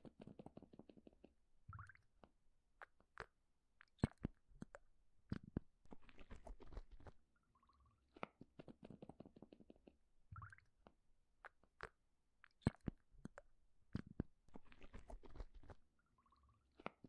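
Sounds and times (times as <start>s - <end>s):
close-up clicks and crackles: 10.8s - 15.9s.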